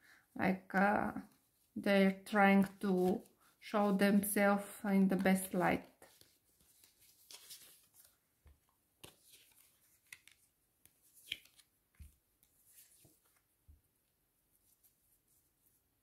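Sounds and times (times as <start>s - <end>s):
cards rustling and clicking: 5.4s - 13.5s.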